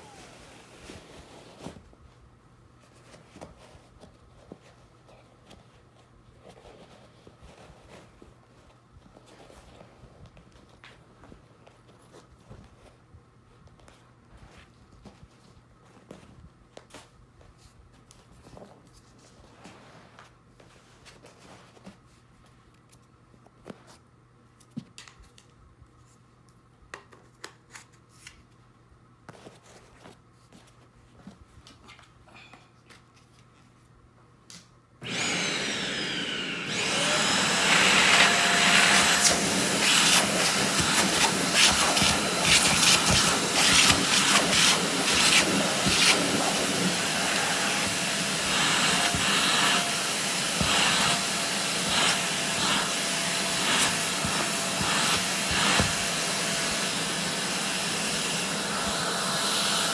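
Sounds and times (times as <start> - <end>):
vacuum cleaner running: 0.0 - 1.4, 35.0 - 59.9.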